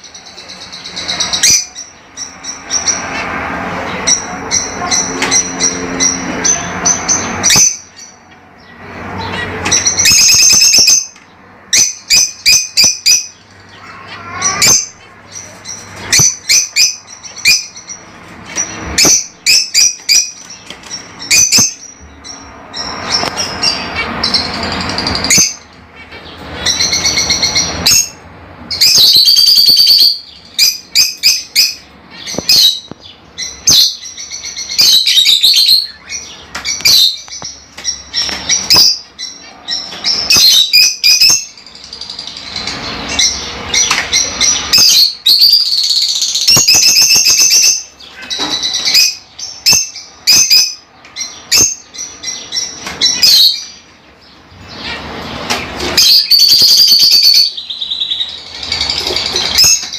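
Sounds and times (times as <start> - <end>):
birds chirping shrilly: 0.0 - 59.9.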